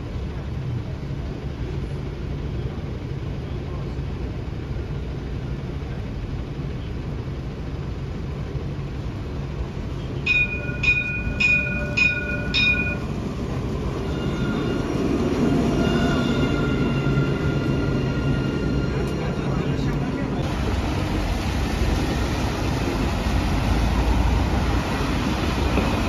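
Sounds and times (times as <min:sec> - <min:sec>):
tram rumble: 0:00.0 - 0:26.0
wheel whine: 0:00.0 - 0:26.0
tram warning bell: 0:10.2 - 0:20.5.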